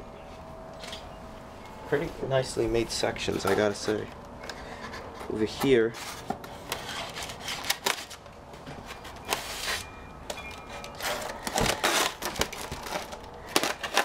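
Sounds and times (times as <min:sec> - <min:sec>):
knife cutting plastic packaging: 0:05.9 - 0:08.2, 0:10.6 - 0:14.0.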